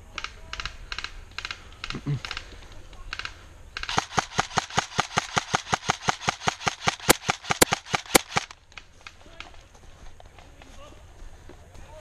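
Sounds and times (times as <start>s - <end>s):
airsoft rifle firing: 3.1s - 8.6s.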